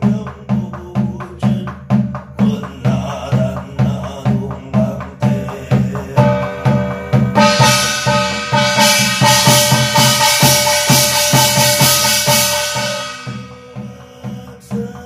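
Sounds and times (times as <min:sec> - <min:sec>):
barrel drum beaten with stick: 0:00.0 - 0:15.0
brass gong ringing: 0:06.2 - 0:13.9.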